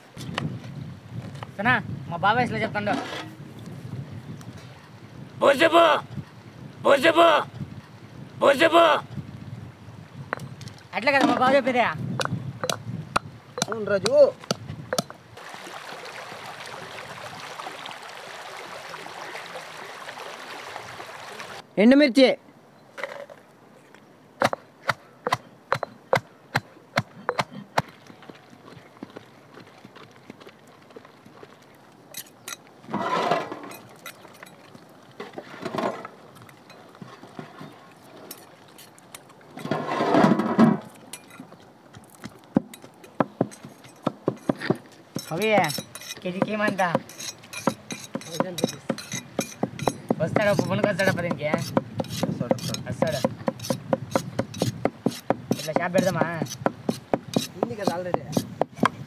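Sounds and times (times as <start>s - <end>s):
river water rushing: 15.3s - 21.7s
cleaver knocking on chopping block: 42.6s - 59.0s.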